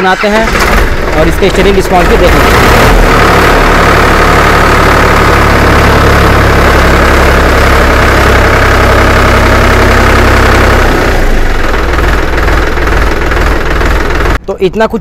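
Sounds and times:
tractor diesel engine running: 0:00.0 - 0:14.5.

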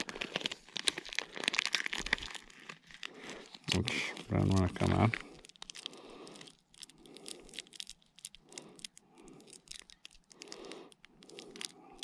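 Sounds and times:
plastic packet crinkling: 0:00.0 - 0:12.0.

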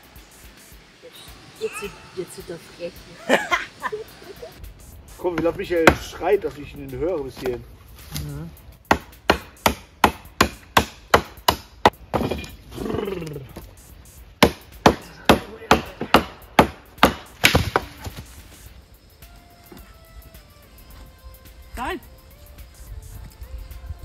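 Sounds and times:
person calling out: 0:01.6 - 0:02.2, 0:21.8 - 0:22.1
axe chopping wood: 0:08.9 - 0:12.6, 0:14.4 - 0:18.2.

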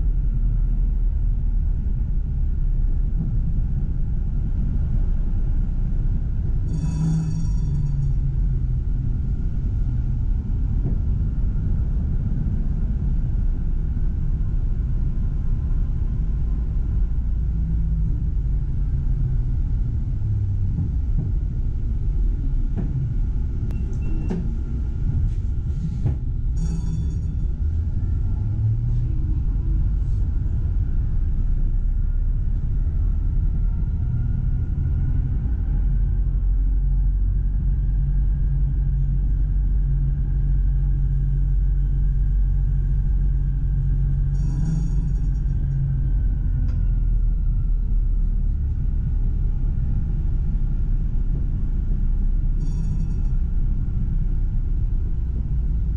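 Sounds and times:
tram rumbling along track: 0:00.0 - 0:55.9
brief ringing tone: 0:06.7 - 0:08.2, 0:26.6 - 0:27.5, 0:44.3 - 0:45.4, 0:52.6 - 0:53.4.

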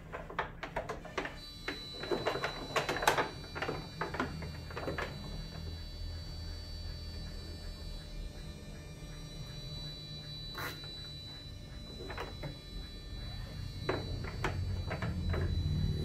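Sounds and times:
knocks and clicks of handling wiring: 0:00.0 - 0:05.6, 0:11.8 - 0:12.7, 0:13.7 - 0:15.7
steady low hum: 0:03.3 - 0:16.0.

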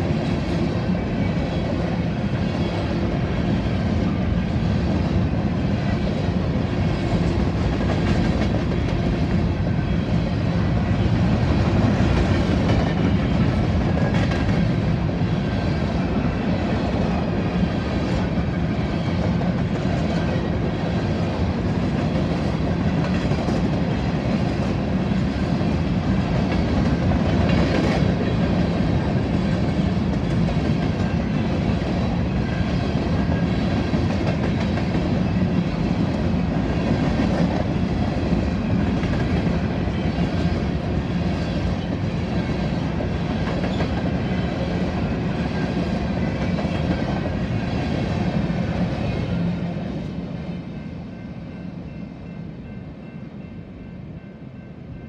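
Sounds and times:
rumble of train wheels on rails: 0:00.0 - 0:55.0.

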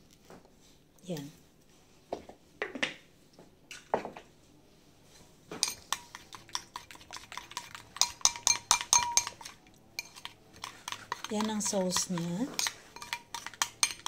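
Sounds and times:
cutlery clinking against a bowl: 0:05.6 - 0:14.0.

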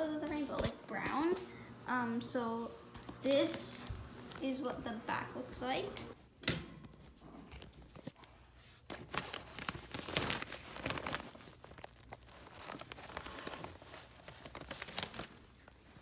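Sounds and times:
fabric rustling and crinkling: 0:07.1 - 0:16.0.

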